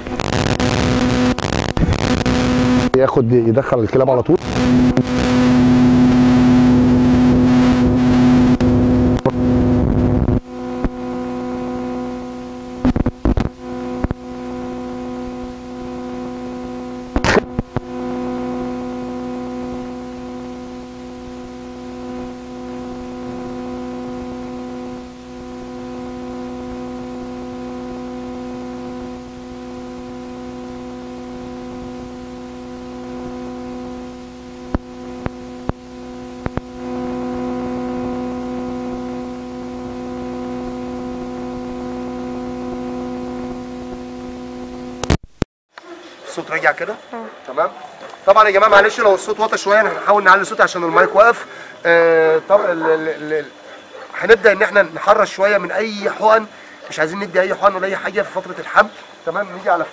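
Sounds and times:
short crackle: 0.0 - 2.9, 4.4 - 45.4
electrical hum: 0.0 - 45.2, 45.8 - 59.9
clicks: 12.8 - 14.2, 36.4 - 36.7, 45.0 - 45.2.

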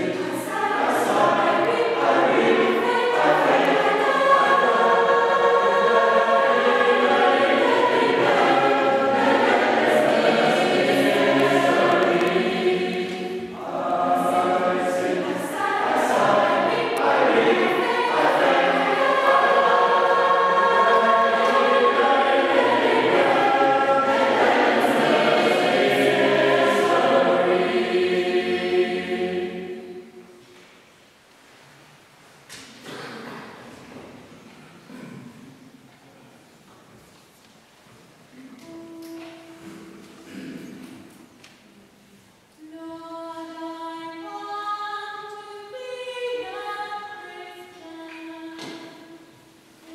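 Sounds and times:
mixed choir singing: 0.0 - 30.4, 42.6 - 49.9.

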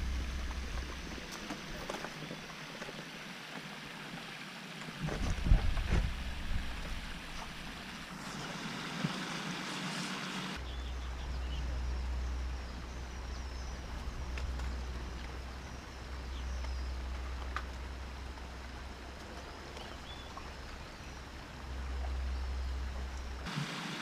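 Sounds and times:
low outdoor rumble: 0.0 - 9.2, 10.0 - 24.0
small birds chirping: 9.6 - 17.9, 19.2 - 23.3.

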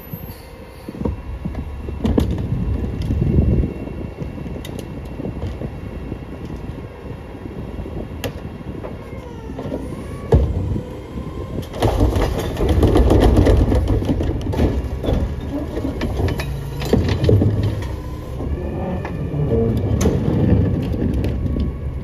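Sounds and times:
recyclables clattering and crunching: 11.5 - 18.1.

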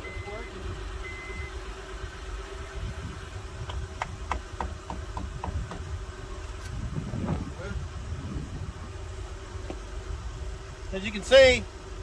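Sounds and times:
minivan blower motor humming: 0.0 - 12.0.

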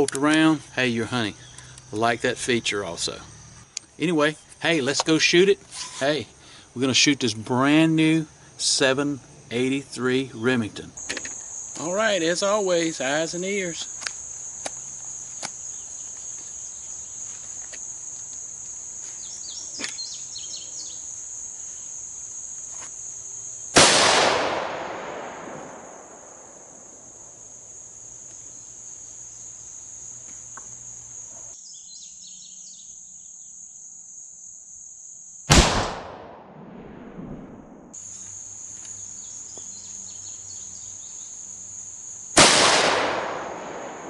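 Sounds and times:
high insect buzz: 0.0 - 35.8, 37.2 - 44.0
rifle shots with echo: 23.8 - 26.8, 35.5 - 37.8, 42.4 - 44.0.

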